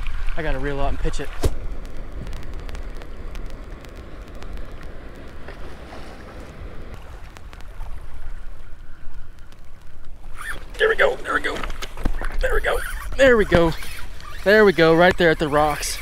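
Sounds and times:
small waves washing against rocks: 0:00.0 - 0:08.7
wind buffeting microphone: 0:00.0 - 0:16.0.

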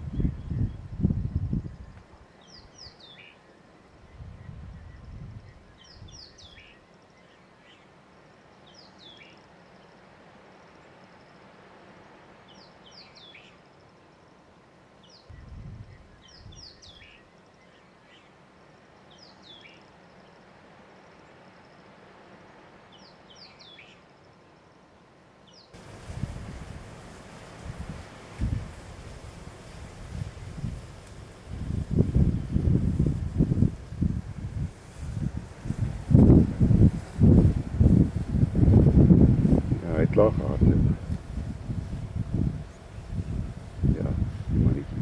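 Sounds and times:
background hiss: 0:00.0 - 0:45.0
songbird chirping: 0:01.6 - 0:26.0.

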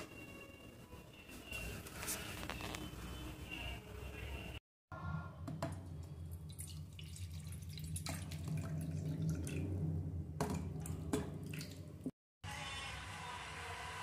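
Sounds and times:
water dripping in metal pot: 0:05.8 - 0:12.0.

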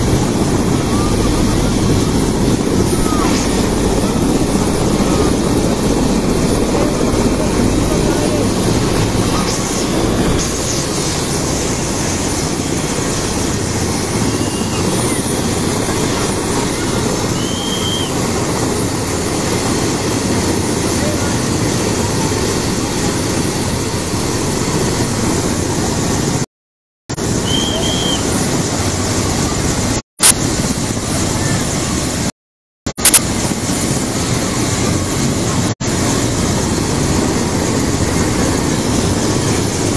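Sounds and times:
helicopter engine and rotor: 0:00.0 - 0:26.5, 0:27.1 - 0:32.3, 0:32.9 - 0:39.9
chatter of onlookers: 0:00.2 - 0:10.4, 0:14.1 - 0:18.7, 0:20.3 - 0:23.5.

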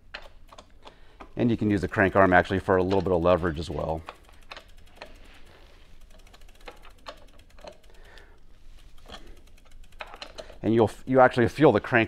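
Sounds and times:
wrench tightening bolt clicks: 0:00.0 - 0:05.2, 0:06.1 - 0:08.2, 0:09.0 - 0:10.7.

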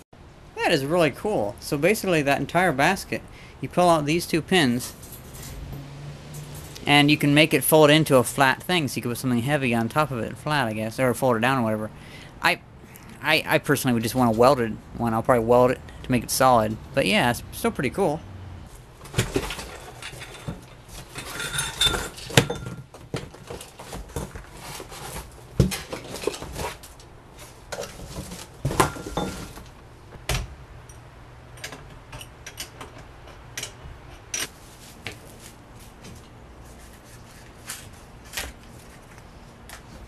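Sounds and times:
metal parts clinking and knocking: 0:19.1 - 0:22.9, 0:30.9 - 0:34.5
cardboard packaging rustling: 0:23.2 - 0:29.7.

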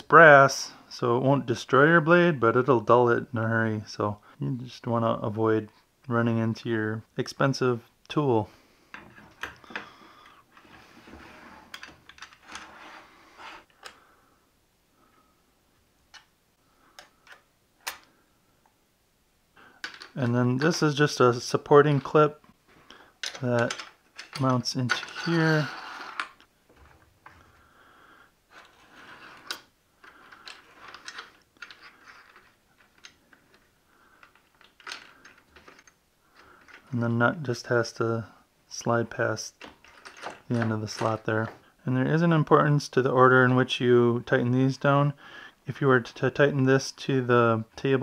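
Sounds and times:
metal parts clicking and scraping: 0:11.6 - 0:14.0, 0:19.8 - 0:21.0, 0:23.2 - 0:26.5, 0:28.5 - 0:36.9, 0:39.6 - 0:41.5.

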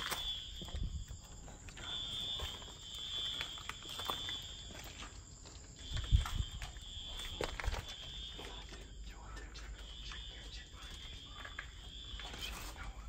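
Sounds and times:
high steady shrill tone: 0:00.0 - 0:05.1
footsteps on concrete floor: 0:00.0 - 0:13.0.

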